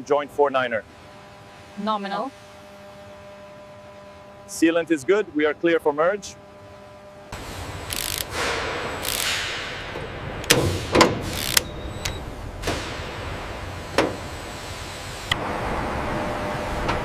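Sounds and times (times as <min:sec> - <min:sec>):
steady low hum: 0:00.0 - 0:17.0
short hissing bursts: 0:07.4 - 0:09.7.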